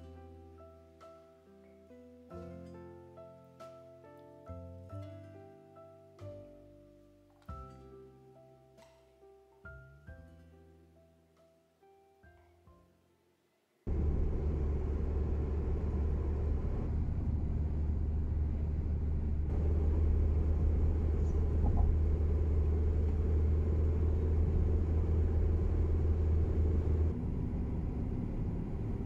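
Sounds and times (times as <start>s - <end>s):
car driving on highway: 13.9s - 29.0s.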